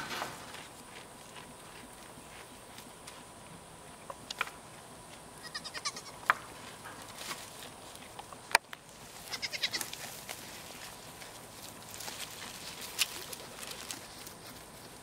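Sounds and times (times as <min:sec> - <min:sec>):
goat bleating: 0:05.4 - 0:06.3, 0:09.2 - 0:10.2.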